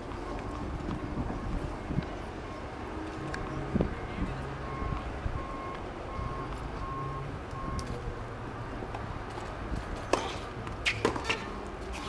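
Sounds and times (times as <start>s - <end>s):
faint beeping tone: 3.4s - 7.9s
tennis ball impacts: 10.1s - 11.4s.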